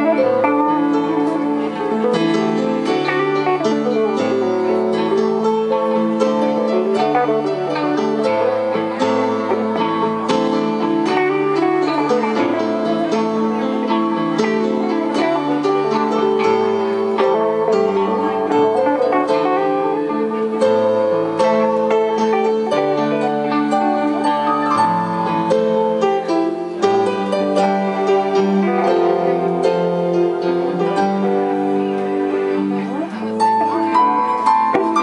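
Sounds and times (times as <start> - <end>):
keyboard and electric guitar jam: 0.0 - 35.0.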